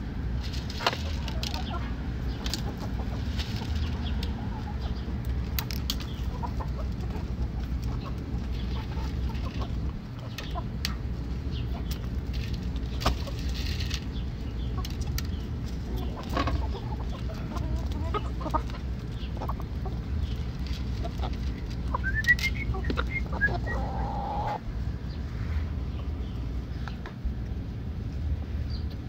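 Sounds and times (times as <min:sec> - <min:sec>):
steady low rumble: 0:00.0 - 0:29.0
chickens clucking: 0:00.3 - 0:29.0
bird rising calls: 0:21.9 - 0:24.6.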